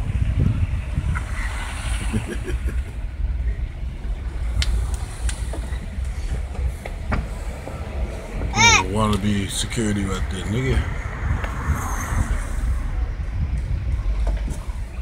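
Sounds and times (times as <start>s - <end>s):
car engine and road noise: 0.0s - 15.0s.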